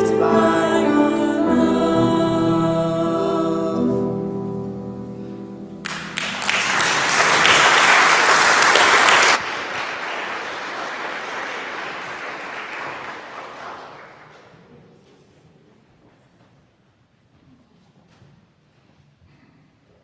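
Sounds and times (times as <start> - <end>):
congregation applauding: 5.8 - 14.6.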